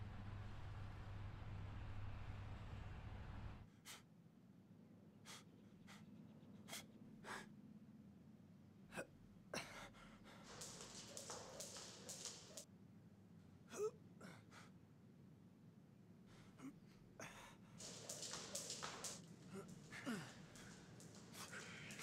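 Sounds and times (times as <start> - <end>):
low street hum: 0.0 - 3.7, 10.3 - 13.3, 17.8 - 22.0.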